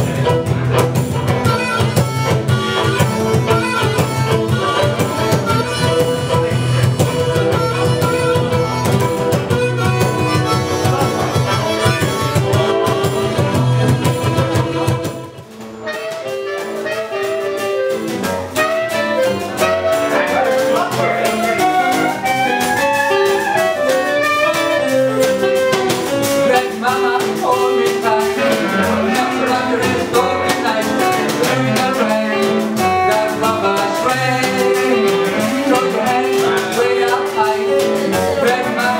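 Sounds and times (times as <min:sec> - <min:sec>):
fiddle: 0:00.0 - 0:17.4
acoustic guitar: 0:00.0 - 0:38.9
clarinet melody: 0:00.0 - 0:38.9
washboard scraping rhythm: 0:00.0 - 0:38.9.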